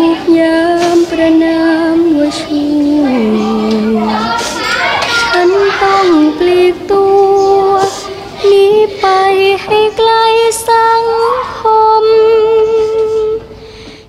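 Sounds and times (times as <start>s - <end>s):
girl singing slow melody: 0.0s - 14.0s.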